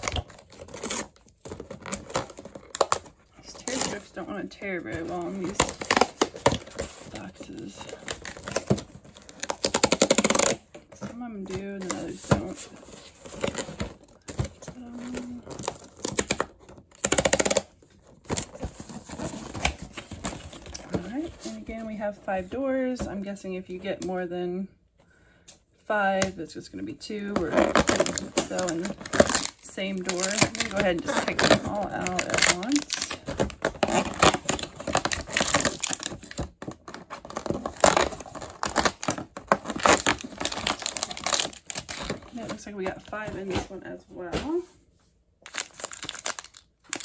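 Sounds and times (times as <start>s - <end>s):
cardboard tear strip crackling: 5.2s - 10.6s, 15.0s - 20.7s, 27.5s - 42.4s, 45.5s - 47.0s
cardboard box rustling: 27.5s - 44.6s.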